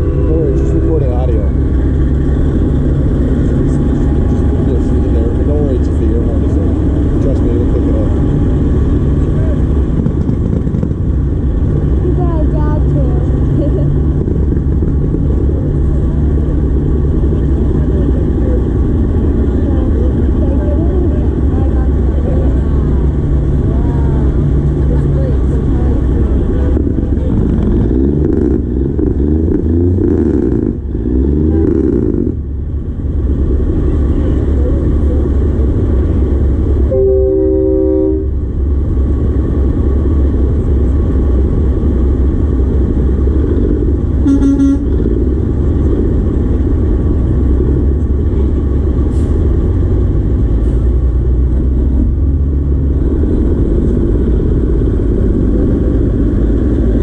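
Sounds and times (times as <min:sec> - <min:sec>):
truck horn blast: 0:00.0 - 0:01.0, 0:36.9 - 0:38.4, 0:44.2 - 0:45.1
higher horn toot: 0:00.0 - 0:01.1, 0:36.9 - 0:38.4, 0:44.2 - 0:45.1
diesel truck engines rumbling: 0:00.0 - 0:57.0.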